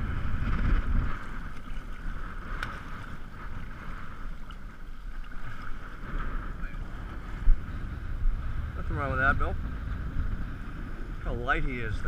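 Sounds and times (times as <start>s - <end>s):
wind buffeting microphone: 0.0s - 12.0s
small water splashes: 1.2s - 6.0s.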